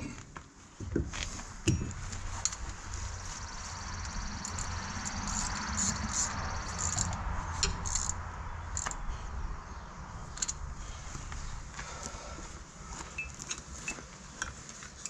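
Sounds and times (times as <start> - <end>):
steady low hum: 0.8 - 14.0
wrench clicking on metal: 4.0 - 9.0, 10.3 - 10.6.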